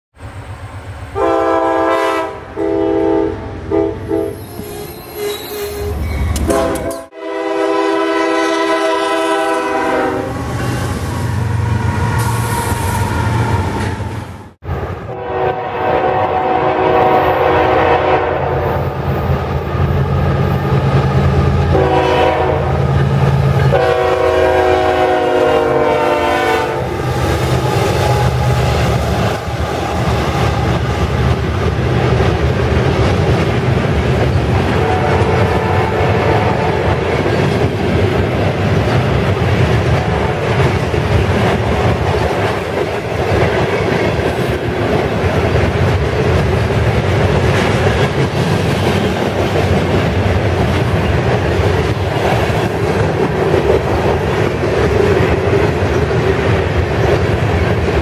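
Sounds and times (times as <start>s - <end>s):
low rumble of moving trains: 0.2s - 58.0s
locomotive horns blowing: 1.2s - 10.8s, 15.1s - 18.8s, 21.6s - 30.8s, 34.5s - 37.2s.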